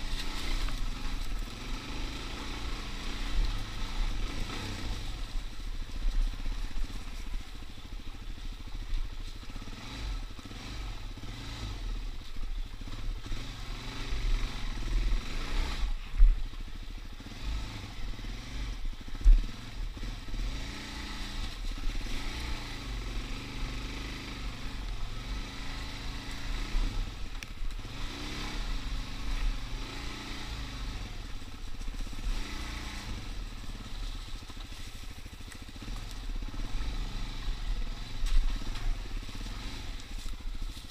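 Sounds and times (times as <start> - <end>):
dirt bike engine running: 0.0 - 40.9.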